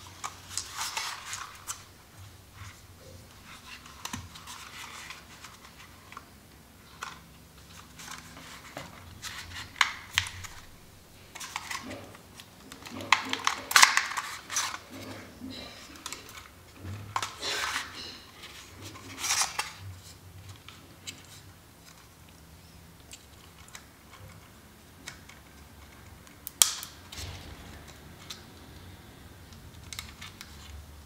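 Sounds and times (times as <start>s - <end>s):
plastic scrapes and rattles: 0.0s - 22.1s.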